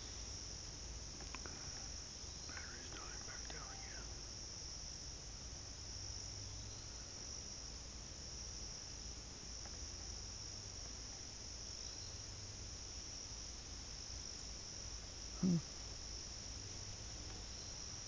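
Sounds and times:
insects shrilling: 0:01.2 - 0:04.1.

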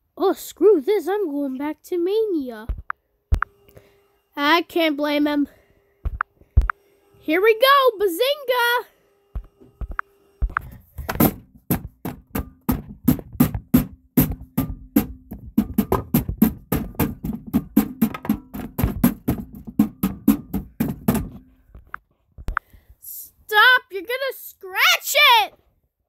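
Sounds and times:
sharp knocks and hits: 0:09.4 - 0:21.9.

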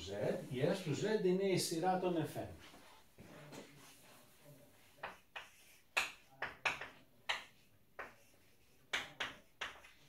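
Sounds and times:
chalk tapping on chalkboard: 0:04.8 - 0:10.0.

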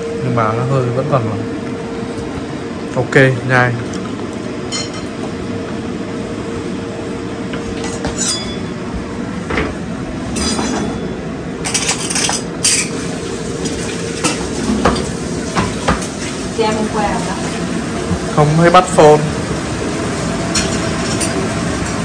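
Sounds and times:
steady background hum: 0:00.0 - 0:22.0
dishes and utensils clinking: 0:04.7 - 0:05.2, 0:07.8 - 0:08.8, 0:10.3 - 0:16.0, 0:20.5 - 0:22.0.

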